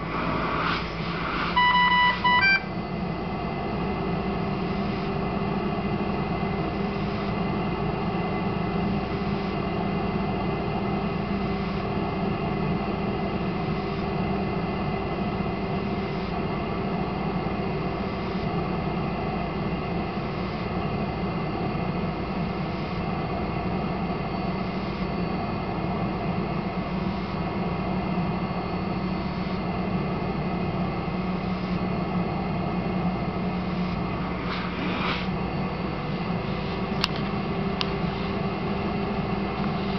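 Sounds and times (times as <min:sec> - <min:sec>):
faint puff of airflow: 0:00.0 - 0:02.2, 0:33.7 - 0:35.4
ventilator hum: 0:00.0 - 0:39.9
alarm beeps: 0:01.3 - 0:02.8.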